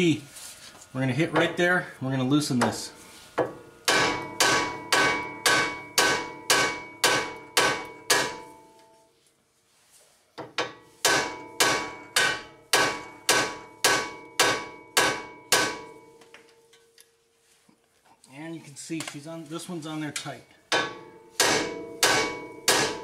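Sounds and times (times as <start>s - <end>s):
hammer ringing on steel: 3.9s - 8.8s, 10.7s - 16.6s, 20.2s - 23.0s.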